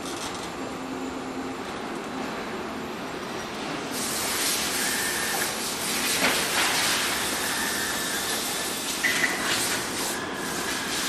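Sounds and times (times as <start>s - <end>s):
hiss of air over machinery: 3.8s - 11.0s.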